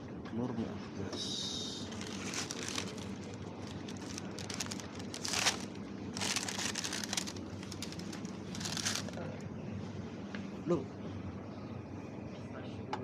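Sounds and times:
steady low hum: 0.0s - 13.0s
wrapper crinkling and rustling: 1.9s - 9.2s.

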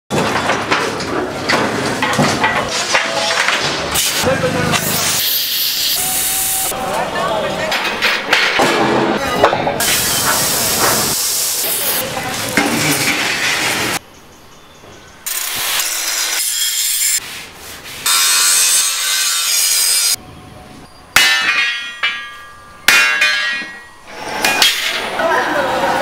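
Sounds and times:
angle grinder cutting steel: 4.0s - 6.8s, 15.3s - 17.2s, 18.0s - 20.2s
sharp metal clangs: 21.1s - 25.1s.

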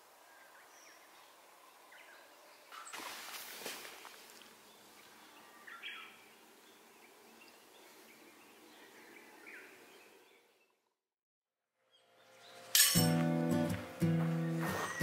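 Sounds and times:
faint outdoor ambience: 0.0s - 10.9s, 11.7s - 15.0s
bird calls: 0.3s - 10.7s, 14.0s - 15.0s.

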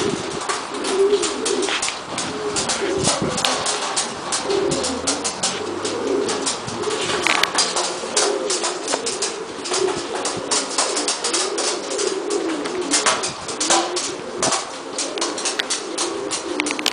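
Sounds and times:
pigeons cooing: 0.0s - 16.9s.

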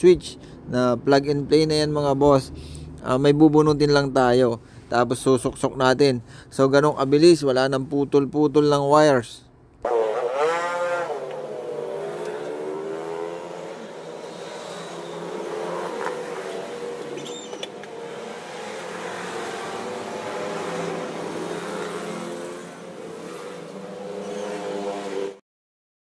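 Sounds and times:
street traffic noise: 0.0s - 25.4s
vehicle engine revving: 9.8s - 25.4s.

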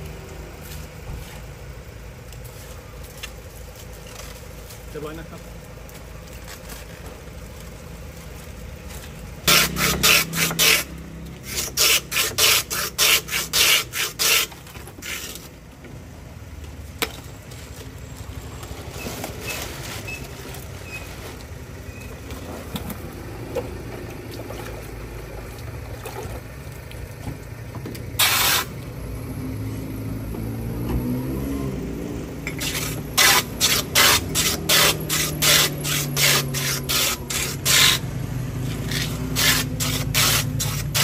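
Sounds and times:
low street hum: 0.0s - 41.0s
ice rasping on shaver blade: 9.5s - 15.4s, 32.5s - 38.1s, 38.7s - 41.0s.

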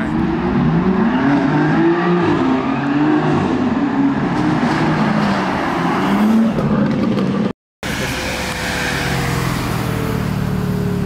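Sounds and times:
car engine under throttle: 5.8s - 11.0s.

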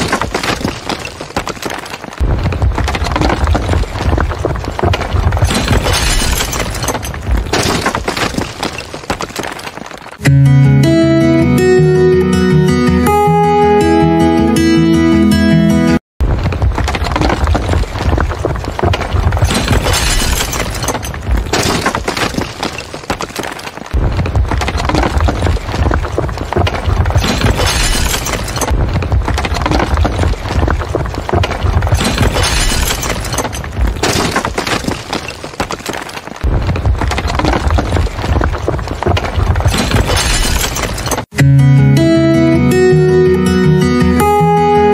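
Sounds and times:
debris crashing and shattering: 0.0s - 10.2s, 16.2s - 41.4s.

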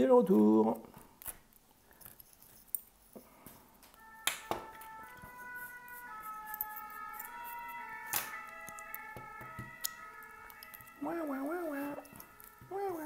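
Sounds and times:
background music sustained notes: 4.0s - 13.0s.

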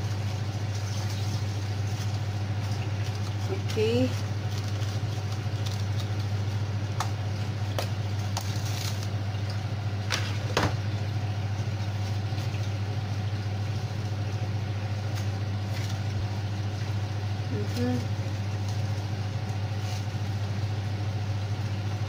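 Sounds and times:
low machine hum: 0.0s - 22.0s
cling film crackling: 0.2s - 17.1s.

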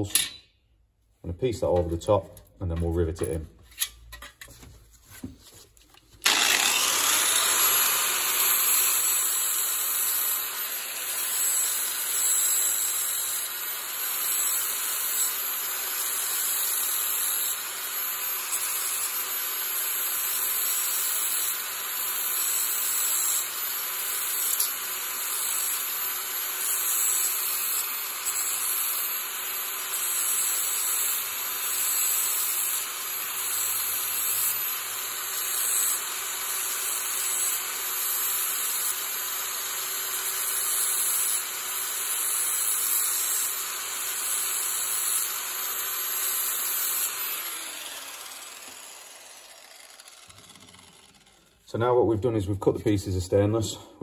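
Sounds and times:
angle grinder grinding metal: 6.2s - 52.8s.

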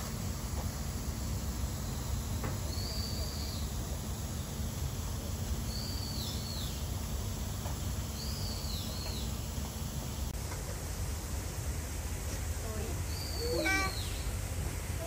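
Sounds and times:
bird whistled call: 13.1s - 14.3s.

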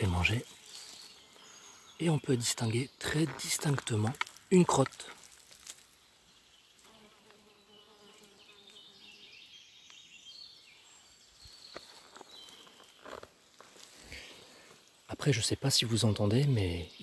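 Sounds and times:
flies buzzing: 6.2s - 9.4s.

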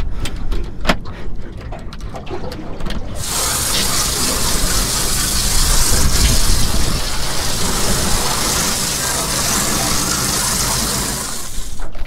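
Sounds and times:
hose spray hissing on deck: 3.2s - 12.0s.

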